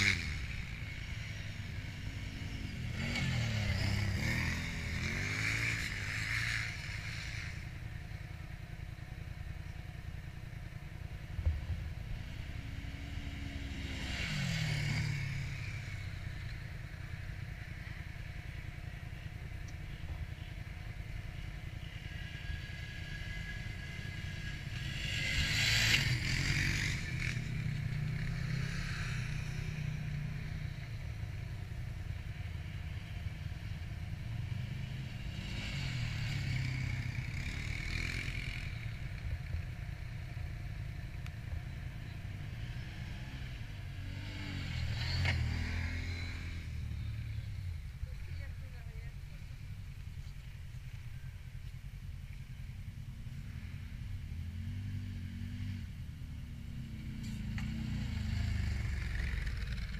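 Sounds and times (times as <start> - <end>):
quad bike revving: 0.0 - 7.8, 11.4 - 17.2, 21.4 - 30.7, 33.6 - 39.7, 41.8 - 49.6, 53.3 - 59.9
quad bike engines idling: 0.0 - 59.9.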